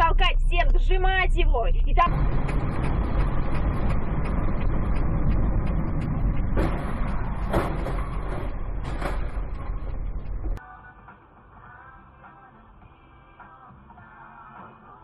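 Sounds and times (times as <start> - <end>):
vehicle rumble and road noise: 0.0 - 10.6
short knocks: 2.1 - 10.6.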